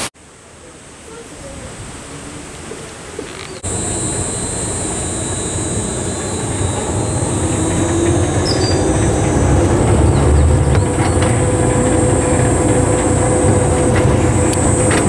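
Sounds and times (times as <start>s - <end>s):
rail cart rumble: 2.6s - 15.0s
high whine: 3.6s - 15.0s.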